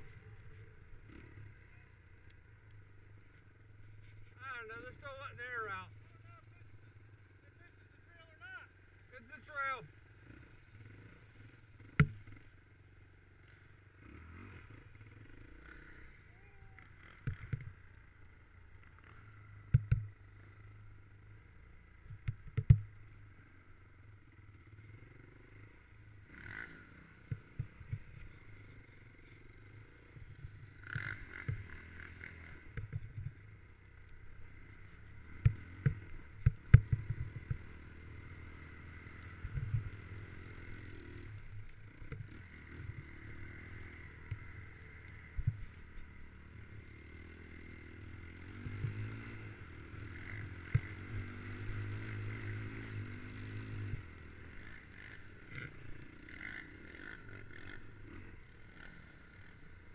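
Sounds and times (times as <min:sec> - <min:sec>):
snowmobile engine drone: 0:00.0 - 0:59.9
knocks and clatters over bumps: 0:16.9 - 0:18.0, 0:18.8 - 0:20.5, 0:22.0 - 0:23.2, 0:27.2 - 0:28.8, 0:30.1 - 0:33.5, 0:34.9 - 0:40.6, 0:41.3 - 0:46.2.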